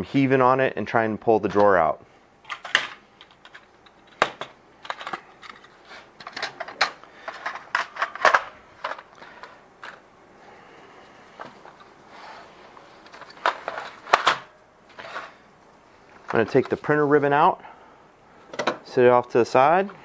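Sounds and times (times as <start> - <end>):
plastic parts clicking: 2.4 - 10.0.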